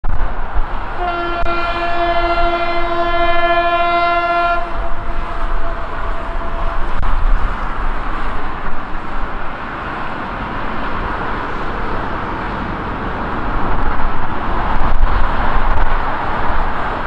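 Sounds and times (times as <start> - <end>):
train rumbling: 0.0 - 17.0
diesel locomotive horn: 1.0 - 7.2.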